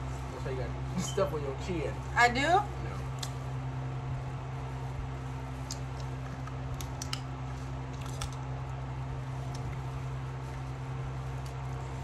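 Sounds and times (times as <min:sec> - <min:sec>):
fan humming: 0:00.0 - 0:12.0
shells cracking and chewing: 0:05.6 - 0:07.3, 0:07.9 - 0:08.5.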